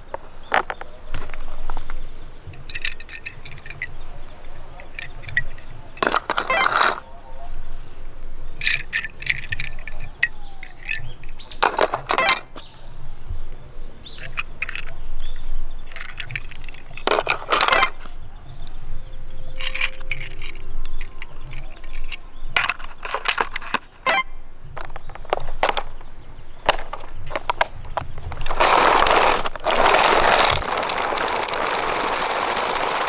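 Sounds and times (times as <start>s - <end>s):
toy cars clicking against plastic case: 2.5s - 7.0s, 8.6s - 12.7s, 14.1s - 15.0s, 15.8s - 18.1s, 19.6s - 24.2s, 24.8s - 26.1s, 26.7s - 33.0s.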